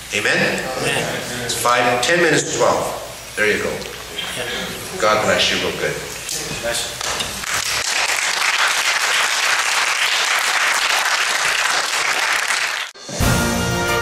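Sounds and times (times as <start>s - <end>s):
congregation applauding: 6.9s - 13.0s
theme music: 13.0s - 14.0s.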